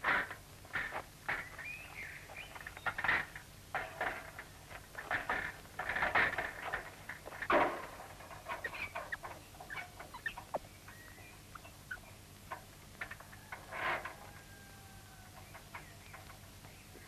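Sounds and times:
chickens clucking: 0:05.0 - 0:17.0.

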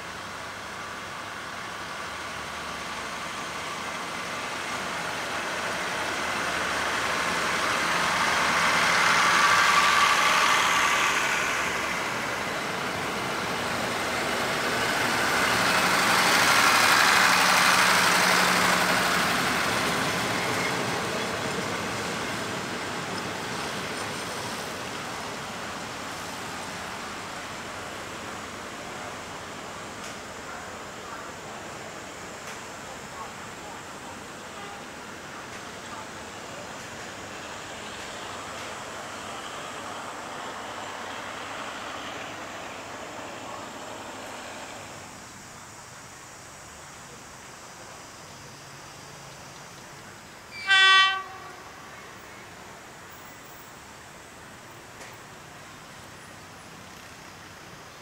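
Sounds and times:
vehicles passing by: 0:01.9 - 0:45.9.

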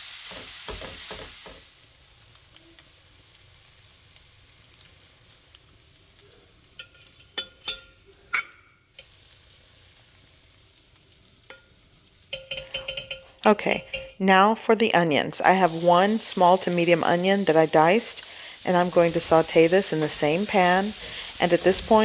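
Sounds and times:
meat sizzling in a frying pan: 0:00.0 - 0:13.0, 0:15.4 - 0:22.0
metal spoon clinking and scraping: 0:06.8 - 0:08.6, 0:12.3 - 0:14.2.

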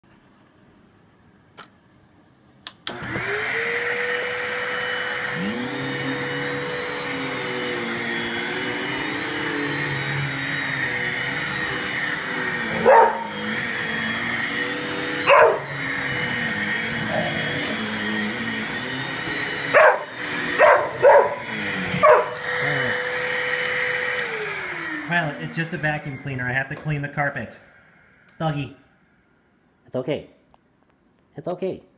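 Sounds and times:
vacuum cleaner motor whine: 0:02.8 - 0:29.2
dog barking: 0:12.7 - 0:13.4, 0:15.2 - 0:15.8, 0:19.7 - 0:22.8
vacuum cleaner switch click: 0:23.5 - 0:24.4.

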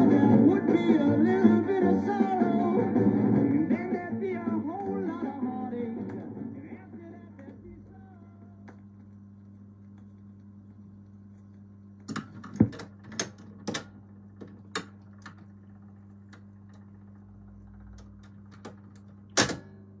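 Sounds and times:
record player hum: 0:00.0 - 0:20.0
mechanical clicks and clunks: 0:12.0 - 0:15.5, 0:17.6 - 0:19.8.

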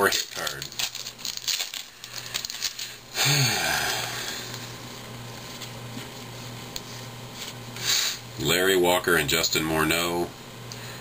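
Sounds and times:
cards rustling: 0:00.0 - 0:03.0, 0:04.3 - 0:07.6
foil wrappers crinkling: 0:00.0 - 0:07.6.

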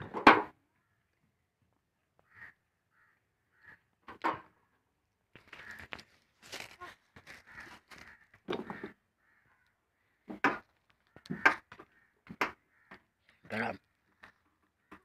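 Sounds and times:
bird harsh calls: 0:05.5 - 0:10.4.

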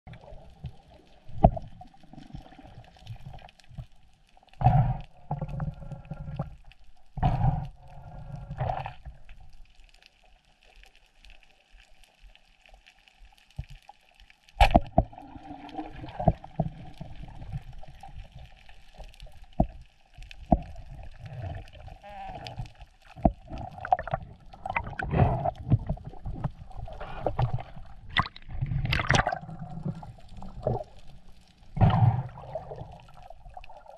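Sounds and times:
water splashing: 0:14.6 - 0:19.7, 0:20.4 - 0:33.9
muffled underwater bubble gurgling: 0:14.7 - 0:19.8, 0:20.4 - 0:33.9.

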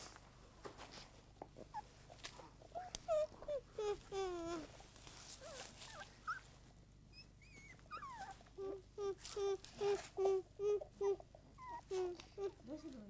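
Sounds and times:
puppies whimpering: 0:02.7 - 0:12.8.

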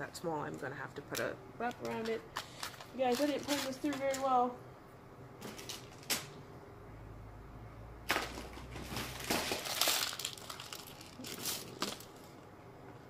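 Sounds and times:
rustling and crinkling: 0:01.6 - 0:04.5, 0:05.4 - 0:06.3, 0:08.1 - 0:13.0.

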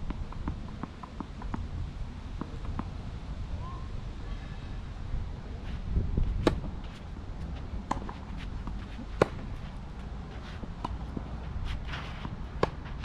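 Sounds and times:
tennis racket hitting ball: 0:07.8 - 0:13.0.

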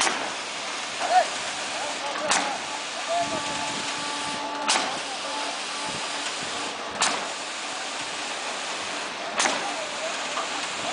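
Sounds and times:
construction site noise: 0:00.0 - 0:10.9
concrete line clanking: 0:01.4 - 0:07.4.

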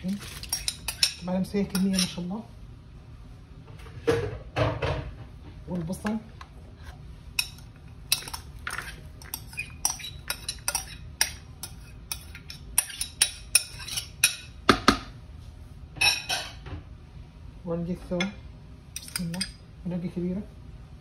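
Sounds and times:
spoon clinking against dish: 0:07.4 - 0:14.5.

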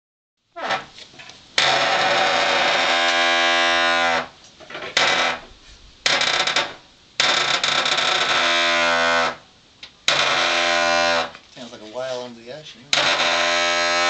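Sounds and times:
stone door grinding: 0:00.6 - 0:00.9, 0:01.6 - 0:09.4, 0:10.1 - 0:11.4, 0:12.9 - 0:14.0.

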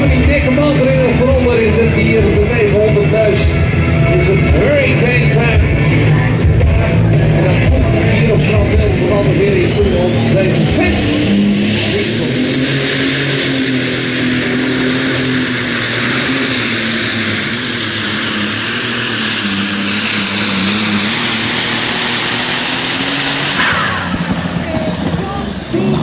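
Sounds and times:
tractor engine at full power: 0:00.0 - 0:26.0
turbo whine screaming: 0:08.5 - 0:26.0.

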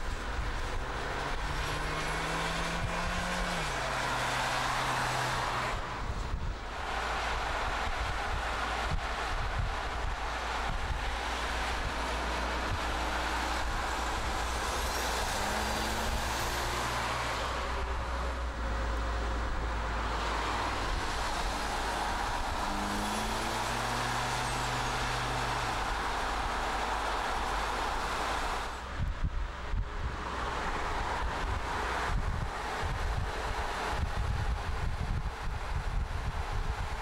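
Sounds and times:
tyre and wind noise: 0:00.0 - 0:37.0
car engine revving: 0:00.6 - 0:06.0, 0:06.7 - 0:28.8.

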